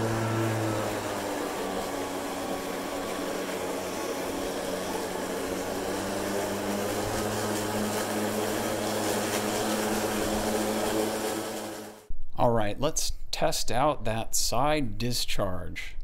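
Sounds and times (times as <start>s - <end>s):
electric lawn mower running: 0.0s - 12.1s.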